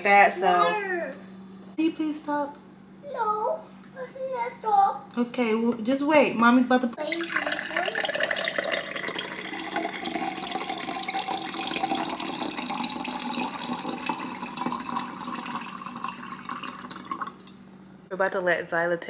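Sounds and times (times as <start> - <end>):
water pouring into a glass: 7.0 - 17.6.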